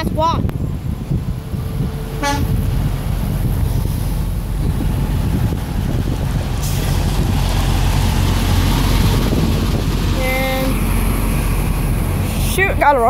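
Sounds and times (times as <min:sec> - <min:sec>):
truck diesel engine passing: 0:00.0 - 0:13.0
tyres and air hissing: 0:01.7 - 0:09.5.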